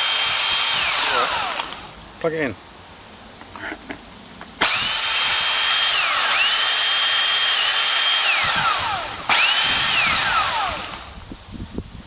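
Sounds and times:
pressure washer motor whining: 0:00.0 - 0:01.9, 0:04.6 - 0:11.2.

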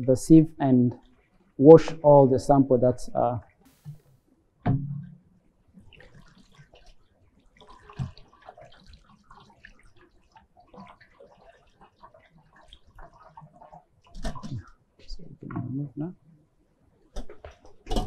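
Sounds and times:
water splashing over mesh sieve: 0:05.8 - 0:14.7.

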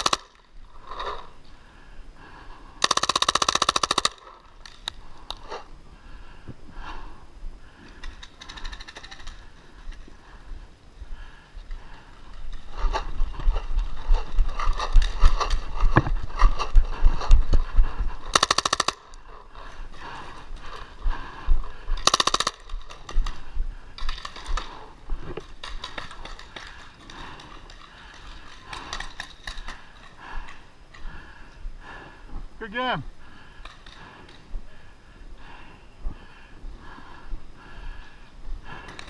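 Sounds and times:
paintball markers firing: 0:00.0 - 0:01.2, 0:02.8 - 0:05.4, 0:18.3 - 0:19.2, 0:22.0 - 0:23.2.

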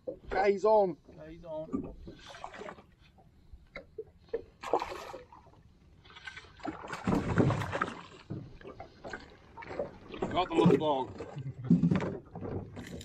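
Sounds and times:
knocks and clicks in metal boat: 0:00.0 - 0:02.8, 0:06.2 - 0:13.0.

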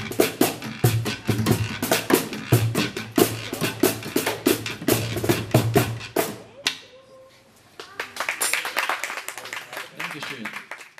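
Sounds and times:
acoustic band playing: 0:00.0 - 0:06.5
voices: 0:03.0 - 0:04.3
people clapping: 0:07.7 - 0:10.9.

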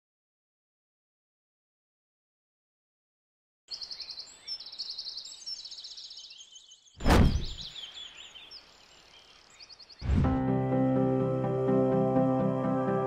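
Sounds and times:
birds chirping and trilling: 0:03.7 - 0:10.6
swoosh with deep thud: 0:07.0 - 0:07.7.

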